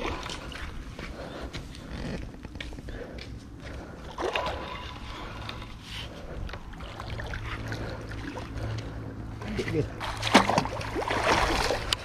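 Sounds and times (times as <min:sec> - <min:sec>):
steady low hum: 0:00.0 - 0:12.0
fish splashing in water: 0:04.2 - 0:05.7, 0:10.0 - 0:12.0.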